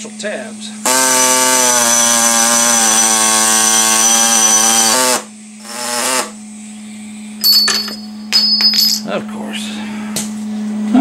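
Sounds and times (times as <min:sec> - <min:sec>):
pneumatic air saw cutting metal: 0:00.8 - 0:06.4.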